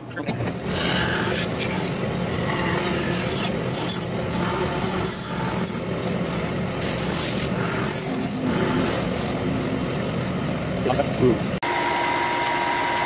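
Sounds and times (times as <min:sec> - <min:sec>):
band saw humming: 0:00.0 - 0:13.0
band saw blade rasping wood: 0:00.6 - 0:09.4.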